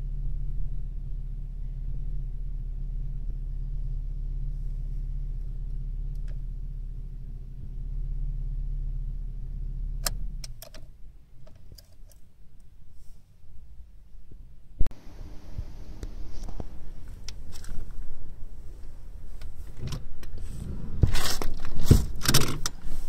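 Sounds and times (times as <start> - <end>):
car engine idling: 0.0 - 23.0
ignition clicks: 5.4 - 6.5, 10.0 - 12.7, 18.8 - 23.0.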